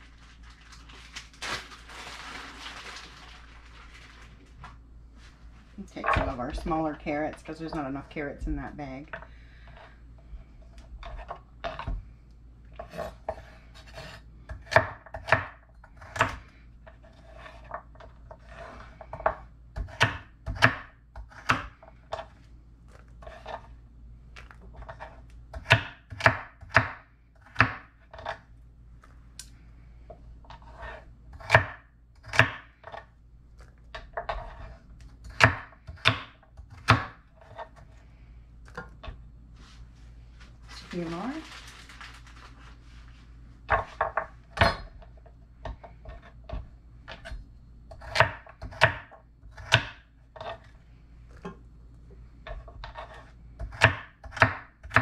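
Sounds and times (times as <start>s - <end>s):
knife chopping on wooden board: 12.8s - 16.4s, 18.4s - 22.2s, 24.8s - 28.4s, 31.4s - 33.0s, 34.0s - 37.7s, 47.2s - 50.6s, 52.5s - 55.0s.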